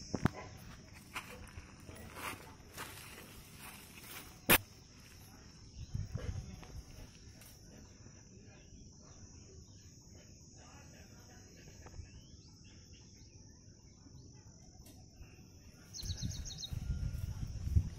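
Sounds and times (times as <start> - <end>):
high-pitched insect drone: 0.0 - 17.9
faint bird chirps: 2.8 - 17.9.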